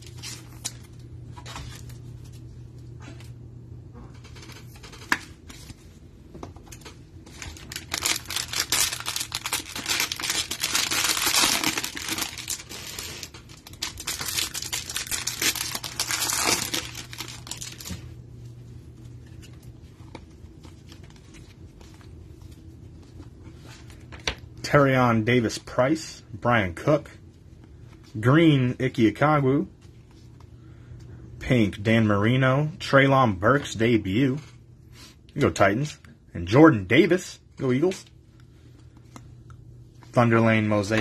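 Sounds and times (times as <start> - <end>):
plastic wrapper tearing and crinkling: 7.3 - 18.0.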